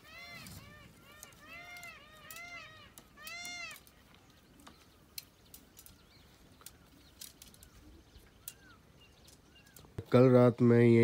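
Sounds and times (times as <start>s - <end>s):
animal mewing calls: 0.0s - 4.0s.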